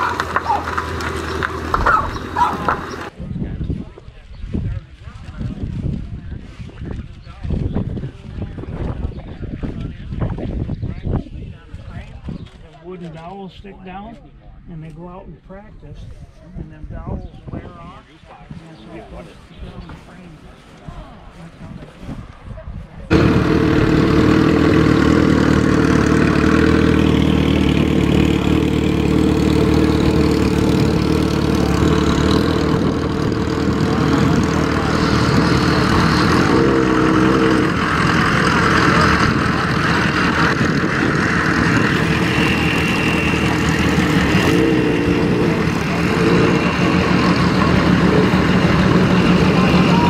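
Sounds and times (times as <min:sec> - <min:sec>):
pickup truck engines idling: 0:00.0 - 0:03.2, 0:23.1 - 0:50.0.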